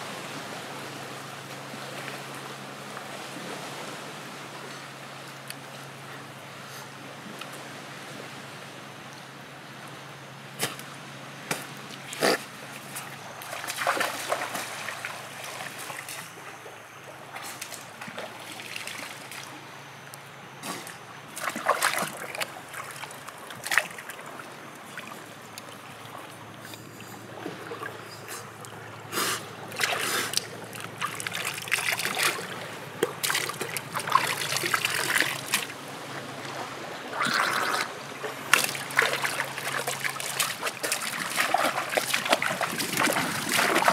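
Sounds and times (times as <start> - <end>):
seawater splashing and trickling: 11.8 - 20.0, 20.6 - 43.9.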